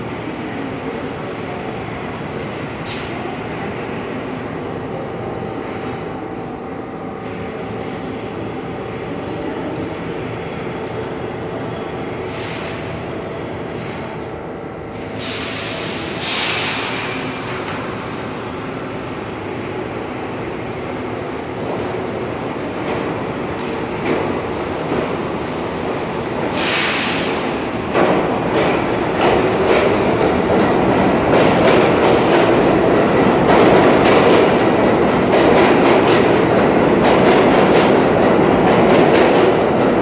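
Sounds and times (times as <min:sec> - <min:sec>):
subway train rumbling: 0:00.0 - 0:40.0
rush of hissing noise: 0:15.2 - 0:19.5, 0:26.5 - 0:27.9.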